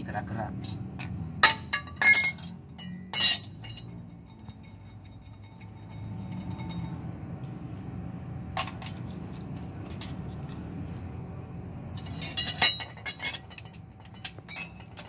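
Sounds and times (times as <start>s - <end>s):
wrench clinking on bolts: 0.6s - 7.1s, 11.9s - 15.0s.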